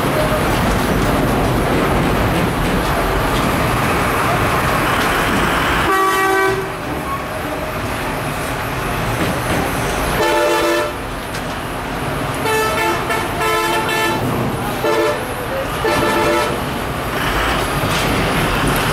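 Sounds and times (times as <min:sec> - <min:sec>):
bus engines rumbling: 0:00.0 - 0:18.9
bus horn blasts: 0:05.8 - 0:06.9, 0:10.2 - 0:11.1, 0:12.4 - 0:16.8.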